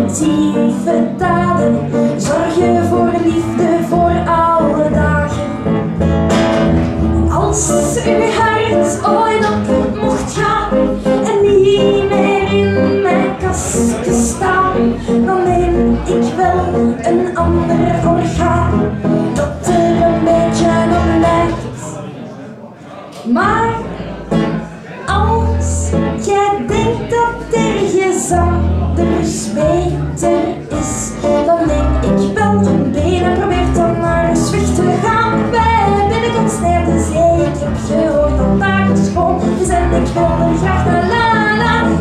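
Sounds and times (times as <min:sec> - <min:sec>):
woman singing: 0:00.0 - 0:05.7, 0:07.2 - 0:21.8, 0:23.3 - 0:23.9, 0:25.1 - 0:42.0
double bass: 0:00.0 - 0:21.7, 0:23.9 - 0:42.0
acoustic guitar: 0:00.0 - 0:21.9, 0:23.4 - 0:42.0.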